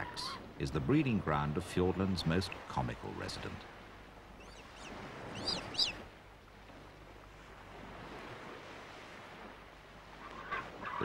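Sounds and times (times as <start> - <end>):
surf washing: 0.0 - 11.0
high bird chirps: 4.4 - 6.0.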